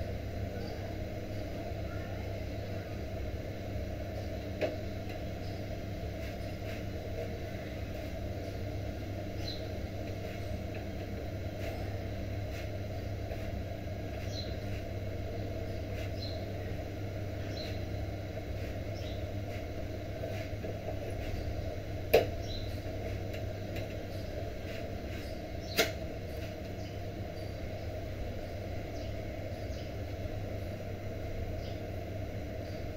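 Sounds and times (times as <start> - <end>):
stove low rumble: 0.0 - 32.9.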